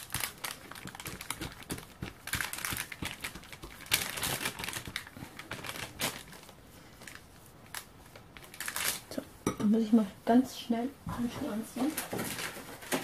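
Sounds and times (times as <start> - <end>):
parchment paper crinkling: 0.0 - 9.2.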